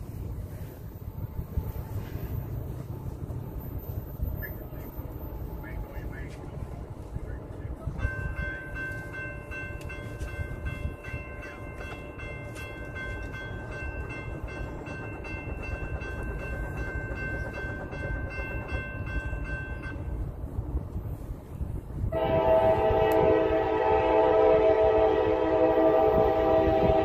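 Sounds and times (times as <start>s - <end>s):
train rumble: 0.0s - 27.0s
locomotive horn: 22.1s - 27.0s.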